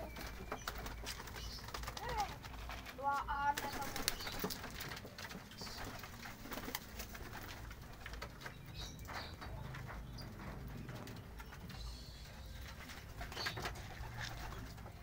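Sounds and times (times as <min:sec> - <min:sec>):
wings fluttering: 0:00.0 - 0:15.0
pigeons cooing: 0:05.5 - 0:15.0.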